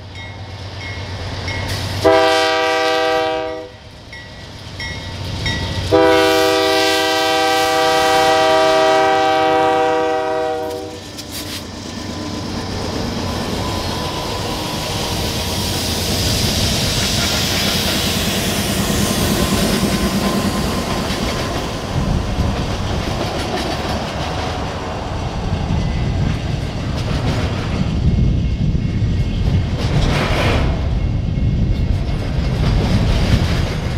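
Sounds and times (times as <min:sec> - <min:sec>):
diesel locomotives passing: 0:00.0 - 0:33.9
locomotive air horn blast: 0:02.0 - 0:03.8, 0:05.9 - 0:11.1
freight cars rumbling by: 0:11.0 - 0:28.6.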